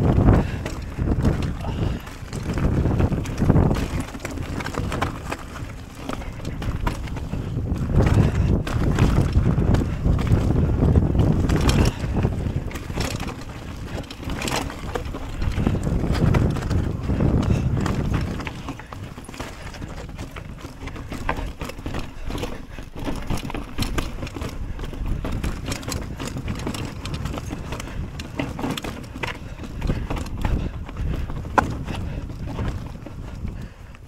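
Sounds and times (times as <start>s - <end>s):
bike clattering over rocks: 0.0s - 33.7s
wind rumble on microphone: 0.0s - 34.0s.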